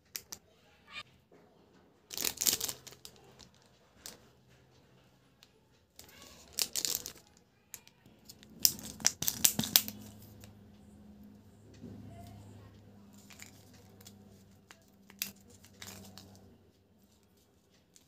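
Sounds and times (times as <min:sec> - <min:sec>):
faint low hum: 0:00.0 - 0:18.0
plastic packaging crinkling: 0:02.1 - 0:03.4, 0:06.0 - 0:07.3, 0:08.2 - 0:10.2.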